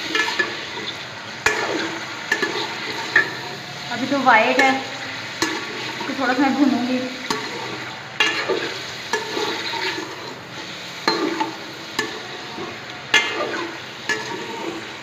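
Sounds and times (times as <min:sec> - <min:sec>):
chicken sizzling in hot oil: 0:00.0 - 0:15.0
metal spoon striking pot: 0:01.4 - 0:03.4, 0:04.5 - 0:05.7, 0:11.1 - 0:12.4, 0:13.1 - 0:14.7.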